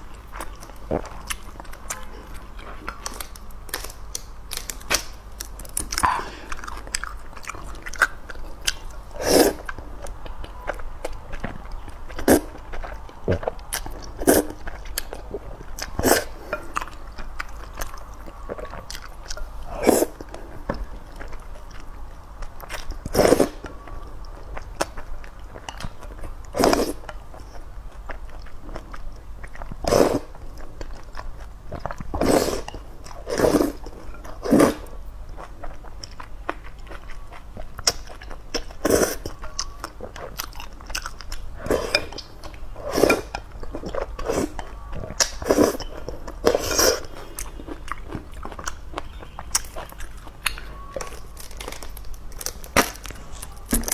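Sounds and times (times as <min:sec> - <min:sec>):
chewing: 0:00.0 - 0:53.9
slurping noodles: 0:32.2 - 0:32.7, 0:33.3 - 0:33.8.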